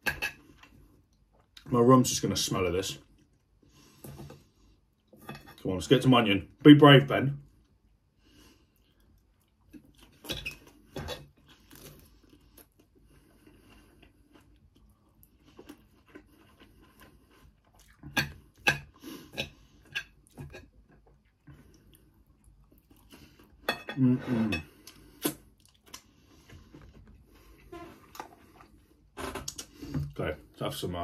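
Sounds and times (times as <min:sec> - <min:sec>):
person chewing and crunching food: 0:00.0 - 0:01.7, 0:07.6 - 0:30.2.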